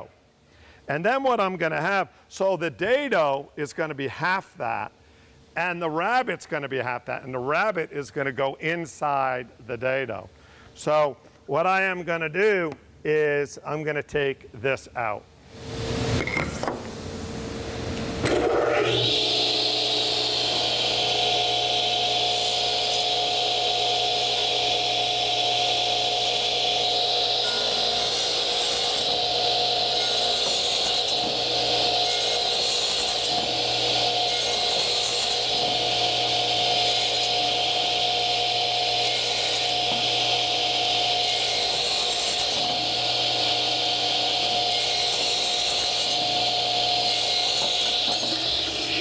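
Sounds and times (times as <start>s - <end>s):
radial arm saw whining: 18.2s - 49.0s.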